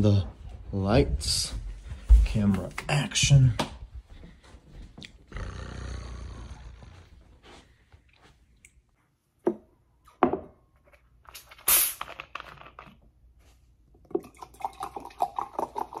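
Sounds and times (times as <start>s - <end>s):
cola glugging into glass: 14.1s - 16.0s.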